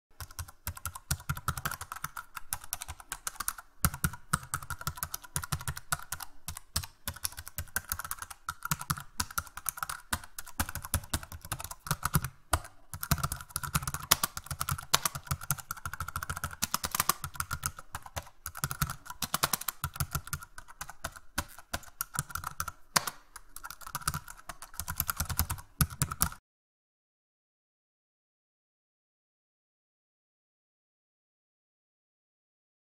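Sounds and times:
fast keyboard typing: 0:00.2 - 0:26.4.

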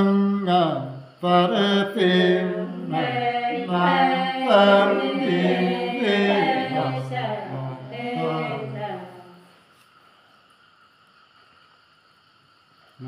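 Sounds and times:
man singing unaccompanied: 0:00.0 - 0:09.2.

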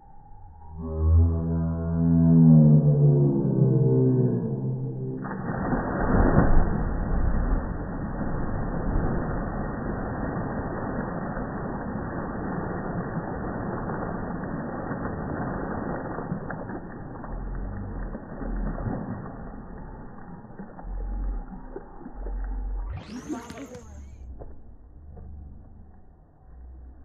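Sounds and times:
low rumbles: 0:00.0 - 0:27.0
slowed rushing water splash: 0:05.0 - 0:26.0.

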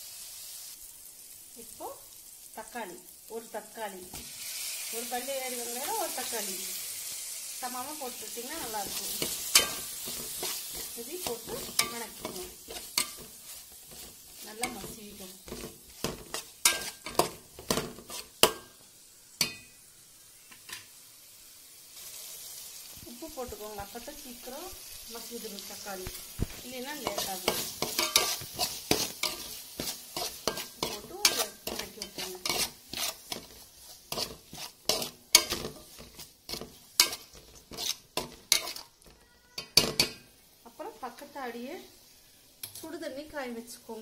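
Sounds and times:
faint sizzle: 0:00.0 - 0:44.0
spoon knocking and scraping pot: 0:08.7 - 0:18.8, 0:26.0 - 0:38.9, 0:39.6 - 0:40.3.

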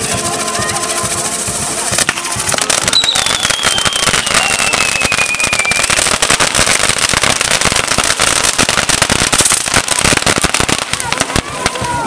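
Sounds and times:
firecrackers crackling and popping: 0:00.0 - 0:12.0
high whistle sliding down: 0:02.8 - 0:05.8.

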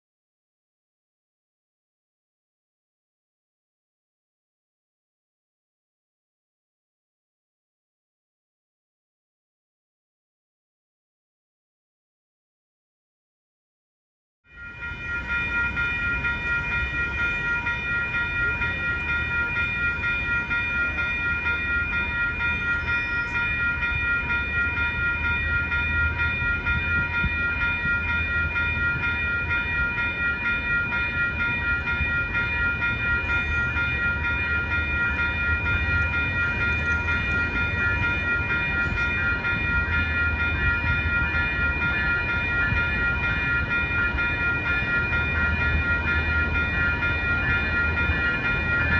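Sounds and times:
railroad crossing bells ringing: 0:14.5 - 0:48.9
train rumbling: 0:14.6 - 0:48.9.

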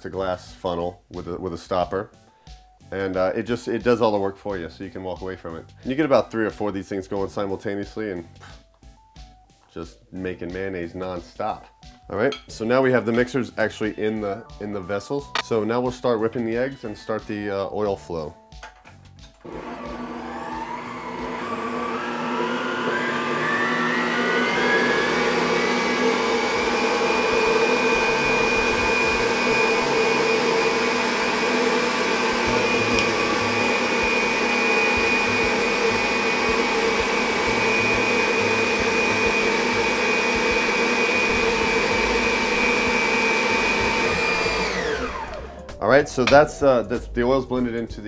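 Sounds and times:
stand mixer motor whine: 0:19.4 - 0:45.6.

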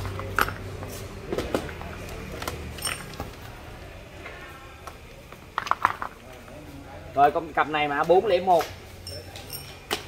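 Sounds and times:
metal tools clicking and knocking: 0:02.4 - 0:03.4, 0:09.0 - 0:10.0.

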